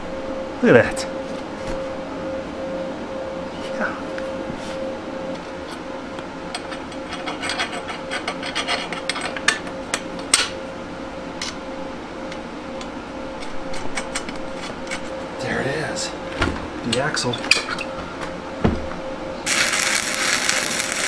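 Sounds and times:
faint hum: 0:00.0 - 0:21.0
metal bolts clicking and scraping: 0:06.6 - 0:09.7.

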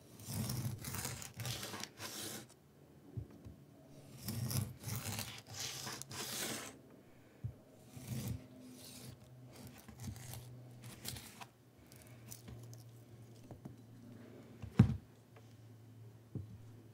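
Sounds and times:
knife slicing avocado: 0:00.1 - 0:02.5, 0:04.1 - 0:06.8, 0:07.9 - 0:11.5.

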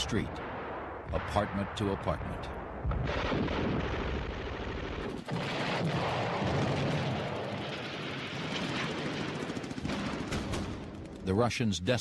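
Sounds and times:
booming explosions: 0:00.0 - 0:11.0
rattling gunfire: 0:09.0 - 0:11.2.

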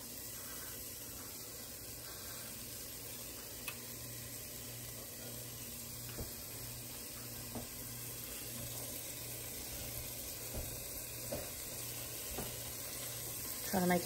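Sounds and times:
cheese sizzling in a pot: 0:00.0 - 0:14.0.

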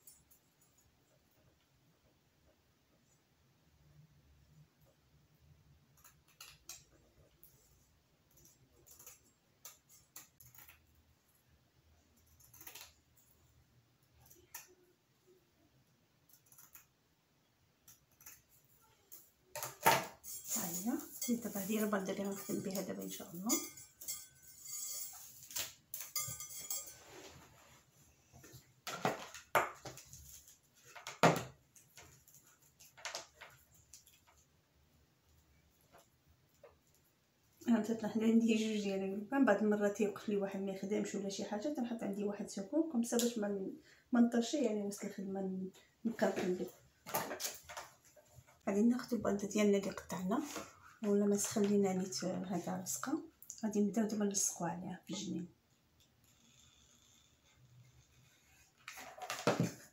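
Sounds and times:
plastic ribbon rustling: 0:20.3 - 0:23.6.

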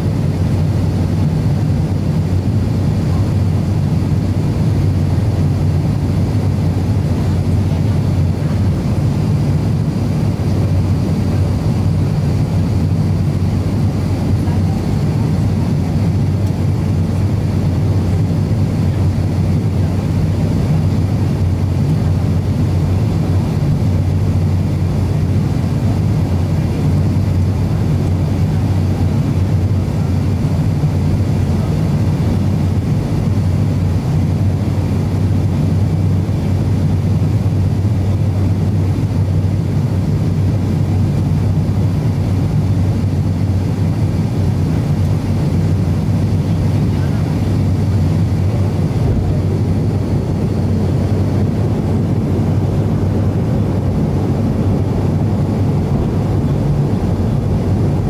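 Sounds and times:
aircraft cabin engine drone: 0:00.0 - 0:58.0
airflow: 0:00.0 - 0:58.0
low hum: 0:42.4 - 0:58.0.

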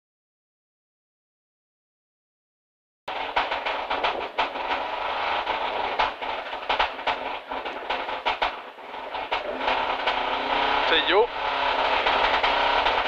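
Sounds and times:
car engine idling: 0:03.1 - 0:13.0
sharp clicks and rattles: 0:03.1 - 0:13.0.

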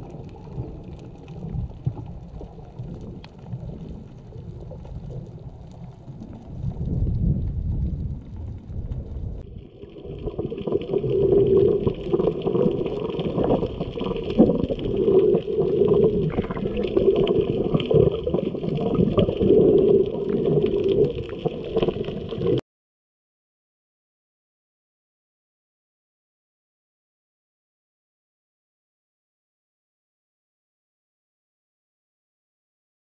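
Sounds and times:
muffled underwater sloshing: 0:00.0 - 0:22.6.

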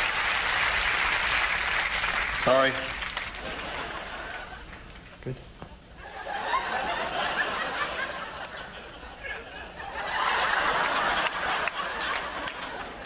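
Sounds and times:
crowd laughing: 0:03.3 - 0:04.9, 0:06.0 - 0:13.0.

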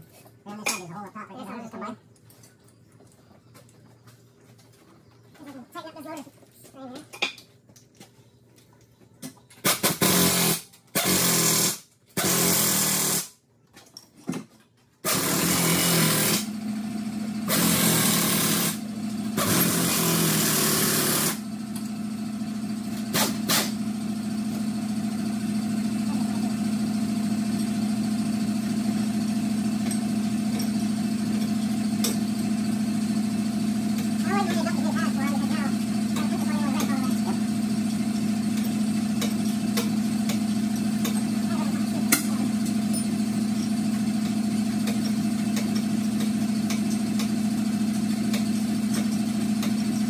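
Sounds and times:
air tool bursts: 0:09.6 - 0:13.3, 0:15.0 - 0:16.5, 0:17.5 - 0:18.8, 0:19.4 - 0:21.4, 0:23.1 - 0:23.8
steady machine hum: 0:15.1 - 0:50.0.

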